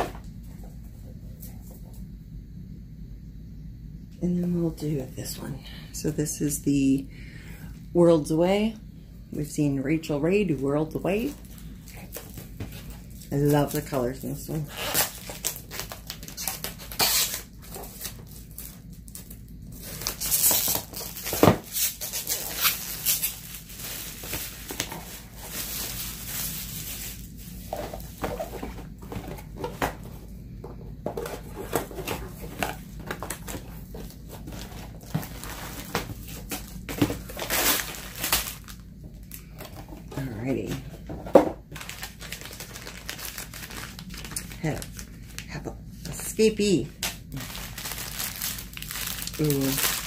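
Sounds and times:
plastic crinkling: 0:10.5 - 0:30.3, 0:31.1 - 0:50.0
cardboard rustling: 0:19.8 - 0:38.8, 0:39.4 - 0:45.4, 0:47.3 - 0:50.0.

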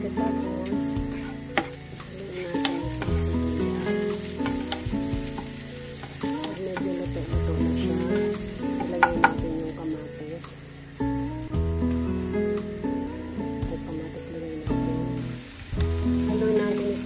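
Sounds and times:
background music with held notes: 0:00.0 - 0:17.0
onion sizzling in frying pan: 0:00.0 - 0:17.0
spatula clicking on pan: 0:01.5 - 0:03.1, 0:08.8 - 0:09.4.

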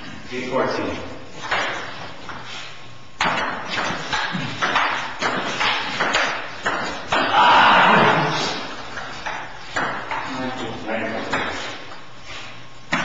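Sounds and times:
ping pong ball clicking off paddles: 0:03.2 - 0:07.4, 0:08.9 - 0:10.3.

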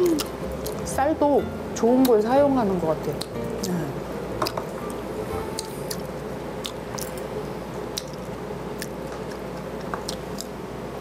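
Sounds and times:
person chewing: 0:00.0 - 0:00.9, 0:03.1 - 0:10.6
faint steady hum: 0:00.0 - 0:11.0.

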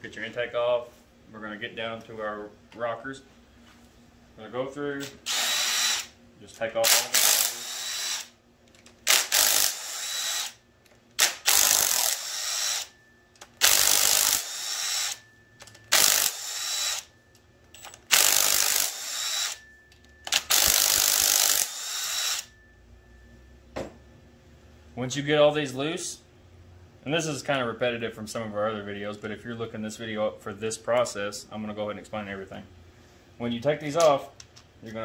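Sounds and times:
impact driver whirring and rattling: 0:05.2 - 0:06.1, 0:06.9 - 0:08.3, 0:08.9 - 0:10.6, 0:11.2 - 0:12.9, 0:13.6 - 0:15.2, 0:15.8 - 0:17.1, 0:17.8 - 0:19.6, 0:20.3 - 0:22.5.

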